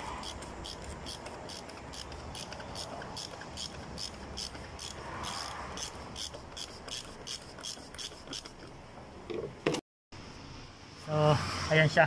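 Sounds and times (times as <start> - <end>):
socket ratchet clicking: 0.0 - 8.8.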